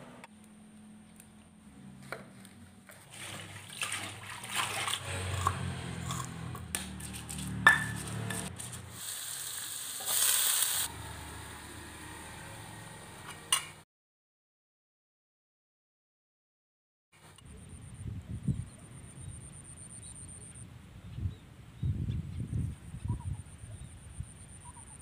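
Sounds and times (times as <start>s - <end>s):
wok sizzling: 5.0s - 13.7s.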